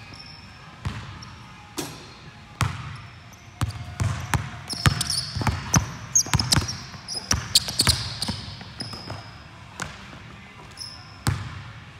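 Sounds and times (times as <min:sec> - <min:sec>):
sneakers squeaking: 0:00.0 - 0:11.7
basketball bouncing on hardwood floor: 0:03.6 - 0:09.2.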